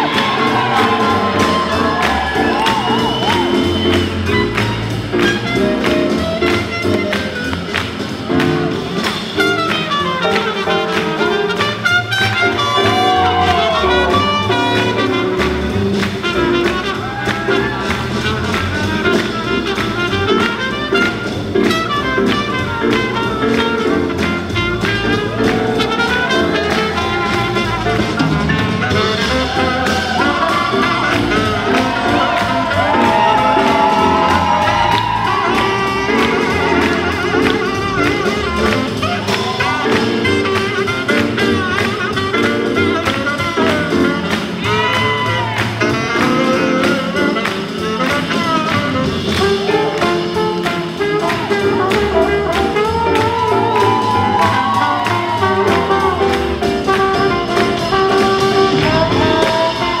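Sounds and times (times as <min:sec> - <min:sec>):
swing band with brass and drums: 0:00.0 - 1:00.0.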